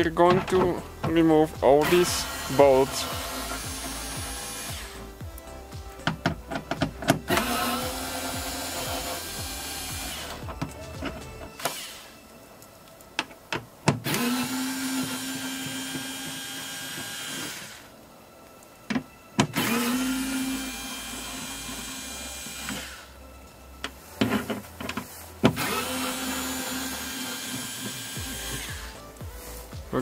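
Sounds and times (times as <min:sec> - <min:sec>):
cordless drill motor whine: 0:01.8 - 0:12.3, 0:14.0 - 0:18.2, 0:19.4 - 0:24.6, 0:25.4 - 0:29.1.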